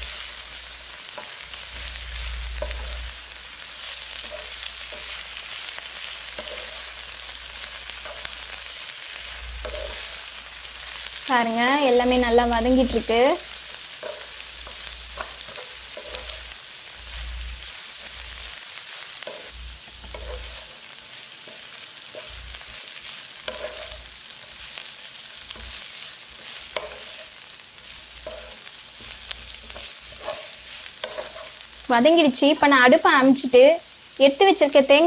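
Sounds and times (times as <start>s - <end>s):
onions sizzling in hot oil: 0.0s - 35.0s
wooden spatula scraping pan: 13.4s - 17.3s, 19.2s - 20.8s, 23.4s - 24.1s, 25.5s - 31.6s.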